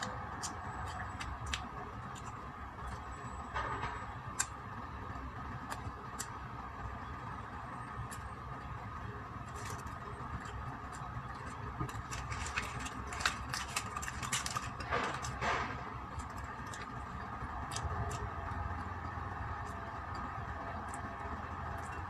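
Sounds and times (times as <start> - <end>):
crisp clicks of biting: 0.0 - 3.0, 9.5 - 18.6
steady background hum: 0.0 - 22.0
plastic wrapper crinkling: 9.5 - 18.3.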